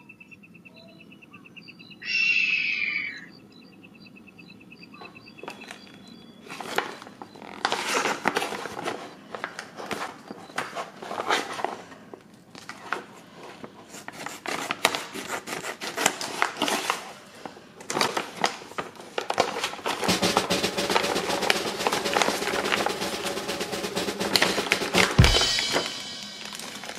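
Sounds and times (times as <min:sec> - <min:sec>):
background music with drums: 0:19.9 - 0:26.9
plastic bags crinkling: 0:25.5 - 0:26.9.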